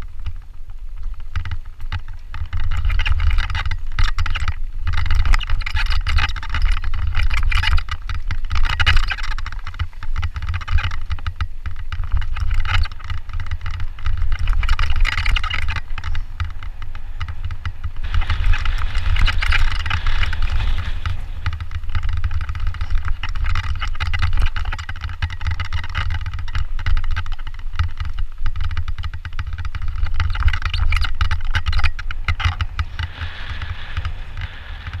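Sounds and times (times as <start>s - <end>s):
bike clattering and rattling: 0.0s - 35.0s
wind rumble on microphone: 0.0s - 35.0s
tyres hissing on gravel: 32.7s - 35.0s.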